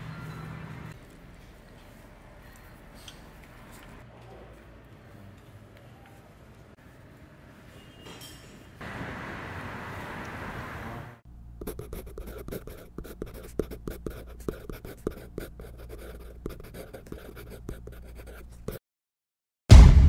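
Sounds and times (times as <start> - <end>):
pen scratching on paper: 11.6 - 18.8.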